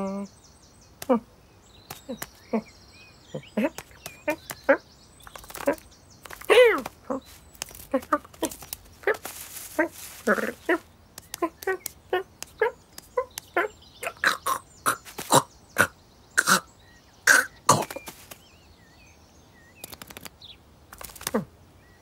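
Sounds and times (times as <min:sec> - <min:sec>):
person imitating cat sounds: 0:03.3 - 0:04.8, 0:05.5 - 0:16.7
brief rustling: 0:03.8 - 0:13.5, 0:17.9 - 0:18.4.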